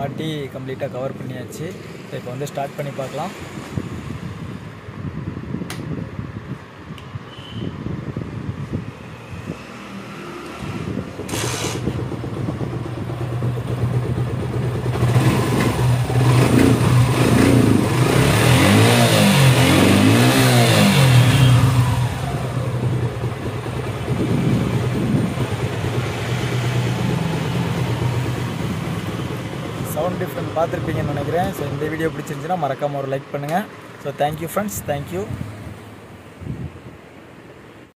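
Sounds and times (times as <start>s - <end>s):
motorcycle engine revving: 8.7s - 31.9s.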